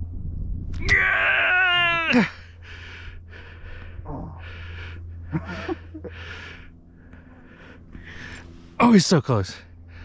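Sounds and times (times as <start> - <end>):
heavy rapid breathing: 2.3 - 8.8.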